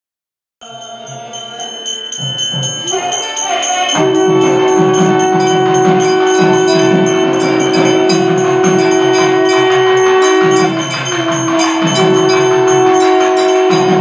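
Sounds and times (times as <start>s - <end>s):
bells ringing rapidly: 0.6s - 14.0s
drum beat: 0.9s - 14.0s
conch shell long note: 2.8s - 14.0s.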